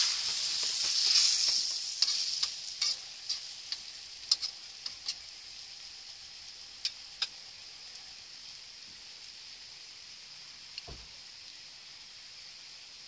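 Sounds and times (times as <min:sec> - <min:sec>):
fat popping and crackling: 0:00.0 - 0:02.6
bread sizzling in fat: 0:00.0 - 0:13.0.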